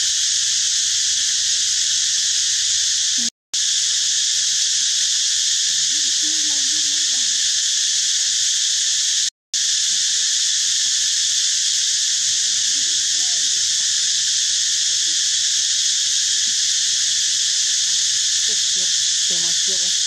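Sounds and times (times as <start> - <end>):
insect chorus drone: 0.0 - 20.0.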